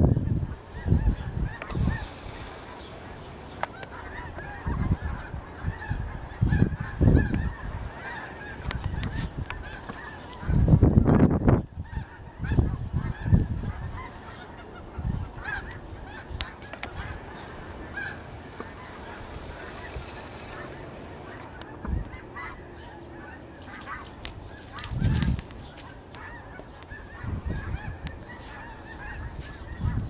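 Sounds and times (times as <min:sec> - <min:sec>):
low rumbling bursts: 0:00.0 - 0:23.6
geese honking: 0:00.6 - 0:30.0.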